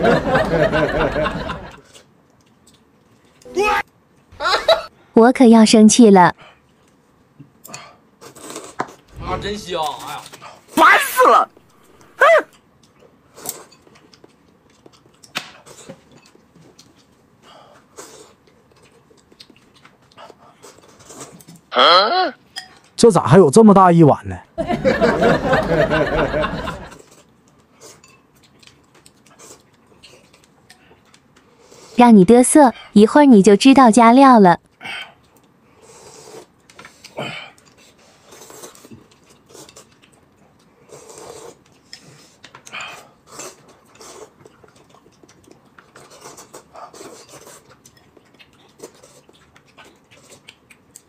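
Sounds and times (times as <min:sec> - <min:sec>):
faint chewing: 0:01.7 - 0:03.5, 0:06.4 - 0:09.2, 0:11.6 - 0:21.7, 0:26.9 - 0:32.0, 0:34.7 - 0:51.0
people slurping soup: 0:35.0 - 0:39.9, 0:40.8 - 0:44.4
small mouth clicks: 0:47.9 - 0:51.0.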